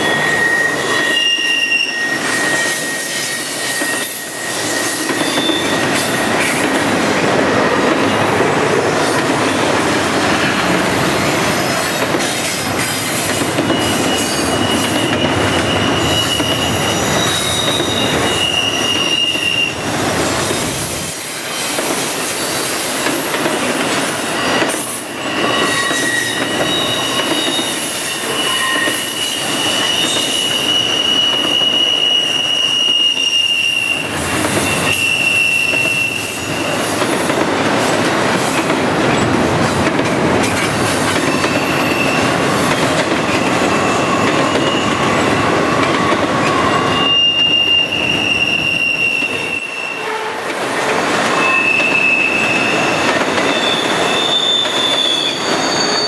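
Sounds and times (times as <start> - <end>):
high wheel squeals: 0.0 - 6.6, 13.0 - 21.8, 24.1 - 37.0, 41.1 - 56.0
freight train wheels rumbling: 1.9 - 56.0.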